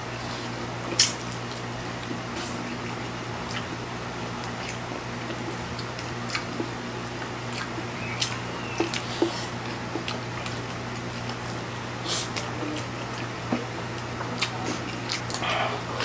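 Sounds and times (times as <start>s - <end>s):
steady low hum: 0.0s - 16.0s
food chewing: 0.1s - 16.0s
wet clicks and smacks: 4.4s - 11.6s, 13.9s - 15.4s.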